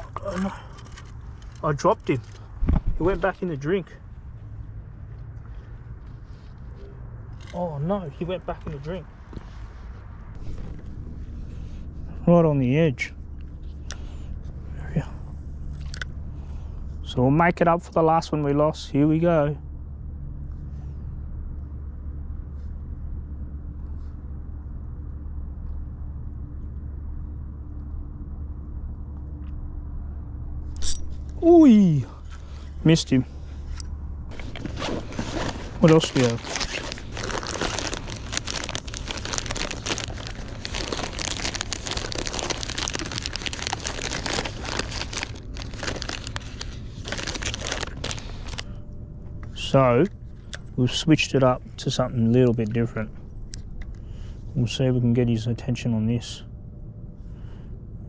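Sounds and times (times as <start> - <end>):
steady low rumble: 0.0 - 58.0
plastic packets crinkling: 34.3 - 48.7.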